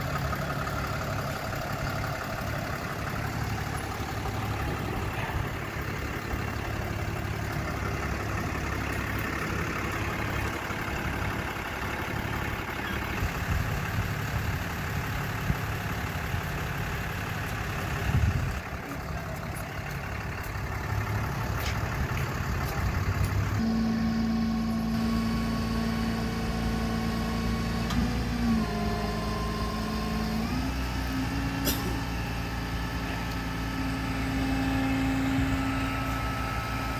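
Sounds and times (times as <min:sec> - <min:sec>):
truck engine idling: 0:00.0 - 0:36.9
hydraulic hum: 0:18.6 - 0:36.9.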